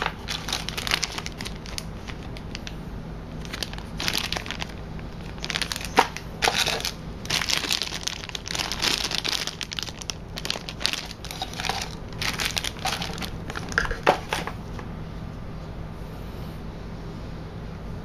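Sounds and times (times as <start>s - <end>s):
plastic bag crinkling: 0.0s - 2.8s, 3.4s - 14.6s
low steady hum: 0.0s - 18.0s.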